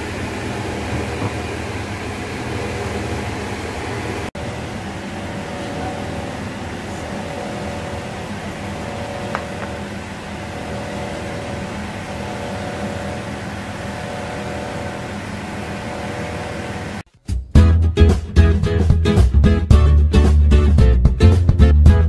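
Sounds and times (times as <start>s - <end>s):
mechanical hum with steady tones: 0.0s - 17.0s.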